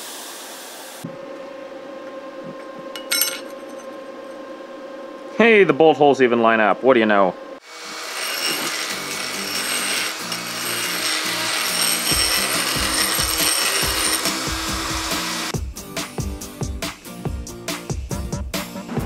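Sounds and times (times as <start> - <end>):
die grinder grinding metal: 7.6 - 15.5
background music with a beat: 15.5 - 19.0.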